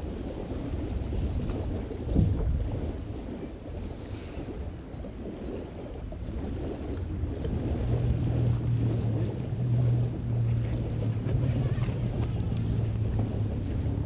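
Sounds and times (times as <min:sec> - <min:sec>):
vehicle engine humming: 0:07.7 - 0:14.0.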